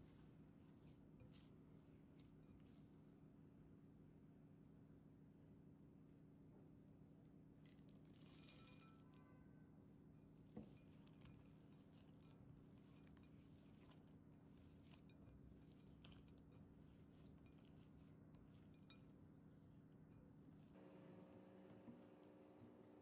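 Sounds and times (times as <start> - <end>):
low steady hum: 0.0 - 23.0
dough clinking against glass bowl: 10.6 - 20.3.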